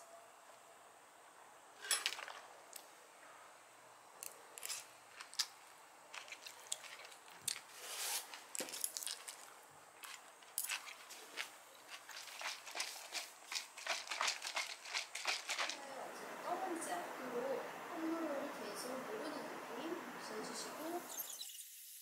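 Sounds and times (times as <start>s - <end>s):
small objects clicking and rustling: 1.8s - 2.9s, 4.2s - 15.8s.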